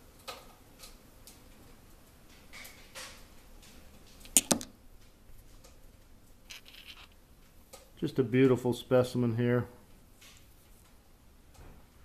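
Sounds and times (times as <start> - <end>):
stones clicking and rubbing: 4.2 - 4.7, 6.5 - 7.2
stone knocking on stone: 4.3 - 4.7.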